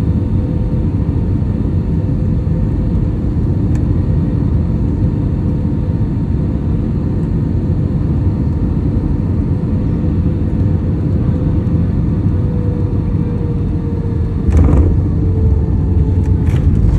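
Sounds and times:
airliner engine and wheel rumble: 0:00.0 - 0:16.9
faint falling whine: 0:12.3 - 0:16.9
short loud knock: 0:14.5 - 0:15.2.

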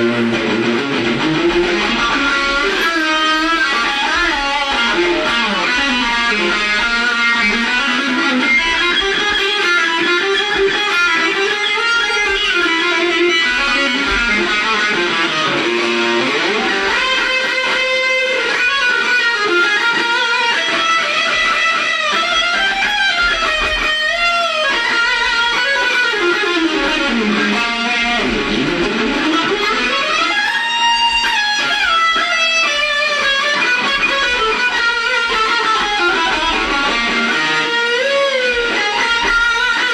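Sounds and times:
electric guitar lead with bent notes: 0:00.0 - 0:39.9.

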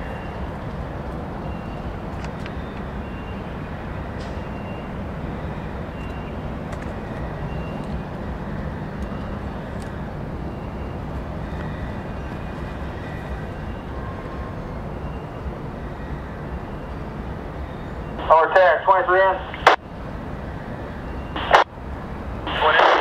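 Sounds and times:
train rumbling by: 0:00.0 - 0:22.9
sharp clicks: 0:21.4 - 0:21.7.

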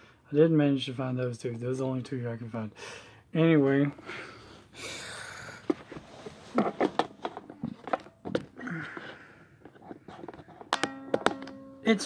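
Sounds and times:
handling clicks and knocks: 0:06.5 - 0:08.6, 0:09.6 - 0:11.7.

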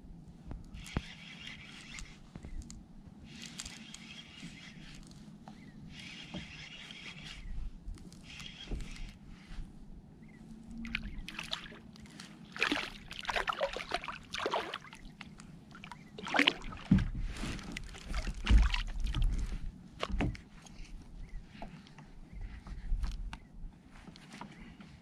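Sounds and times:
water splashing and sloshing: 0:10.6 - 0:20.9.

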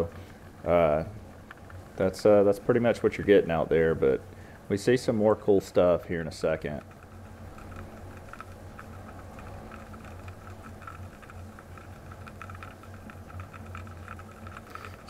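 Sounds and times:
faint crackling clicks: 0:00.0 - 0:15.0
underwater low hum: 0:02.6 - 0:04.8, 0:06.1 - 0:15.0.

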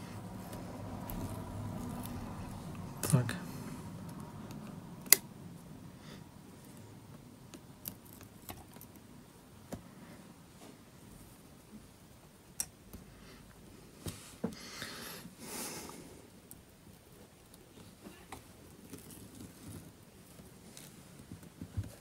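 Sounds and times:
soft handling rustle: 0:16.3 - 0:22.0.

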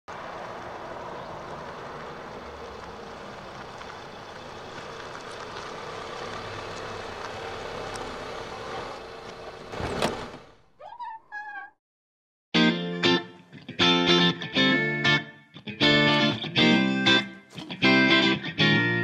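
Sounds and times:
vehicle rumble: 0:00.1 - 0:10.7.

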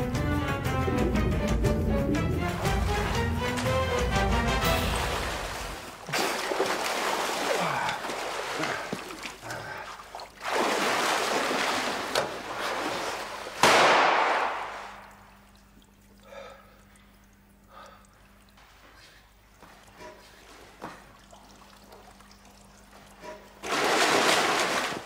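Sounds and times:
pool water splashing: 0:00.0 - 0:25.0
loud splash: 0:02.4 - 0:09.3, 0:10.4 - 0:15.2, 0:23.6 - 0:25.0.

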